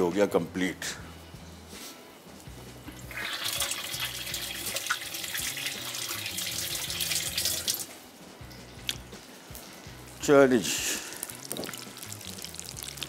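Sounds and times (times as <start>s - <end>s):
fish frying in oil: 11.2s - 13.0s.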